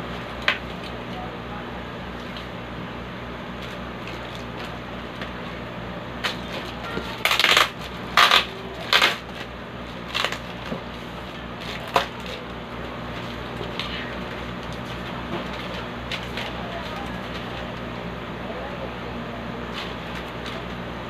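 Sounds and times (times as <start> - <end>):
steady low hum: 0.0 - 21.0
packing tape tearing: 3.5 - 5.6, 6.2 - 17.9, 19.6 - 20.8.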